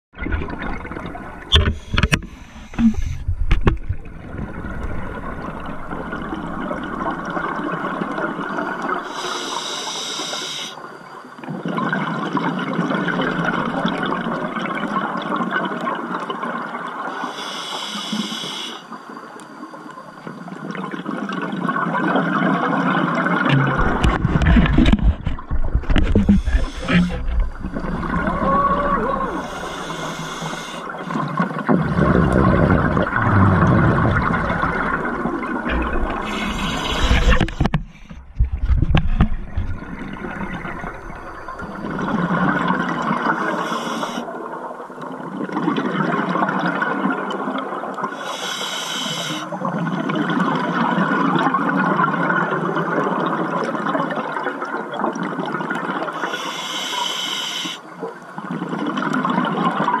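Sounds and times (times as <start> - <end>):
rumble of water movement: 0.0 - 48.8, 49.4 - 56.9, 57.8 - 60.0
exhaled bubbles gurgling underwater: 0.1 - 17.2, 17.8 - 60.0
regulator inhalation hiss: 9.0 - 10.9, 17.2 - 19.0, 29.2 - 31.3, 36.1 - 38.0, 43.4 - 44.3, 48.2 - 49.6, 56.2 - 57.9.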